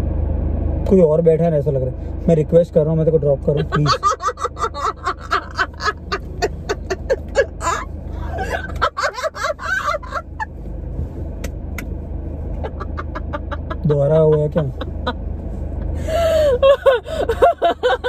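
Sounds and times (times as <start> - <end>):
car cabin hum: 0.8 - 18.0
woman laughing hard: 3.6 - 10.5, 12.6 - 15.2, 15.8 - 18.0.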